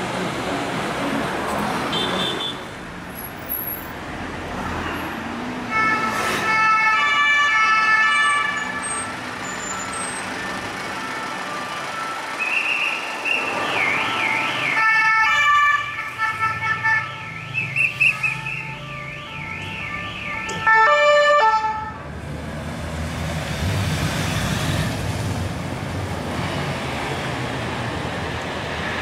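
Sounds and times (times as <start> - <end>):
city traffic: 0.0 - 29.0
police siren steady tones: 16.9 - 21.7.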